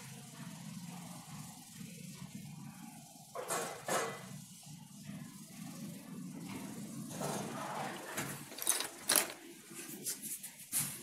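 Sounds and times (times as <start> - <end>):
steady low hum: 0.0 - 3.4
wooden turntable scraping: 7.1 - 9.4.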